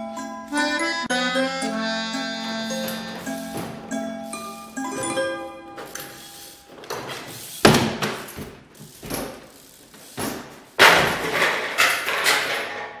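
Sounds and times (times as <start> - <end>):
bike thumping on wooden obstacles: 2.7 - 4.4, 5.8 - 13.0.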